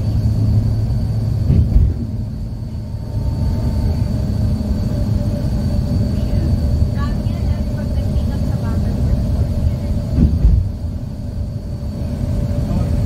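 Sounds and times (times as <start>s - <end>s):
vehicle engine and road noise: 0.0s - 13.0s
vehicle bump: 1.4s - 2.2s, 10.1s - 10.9s.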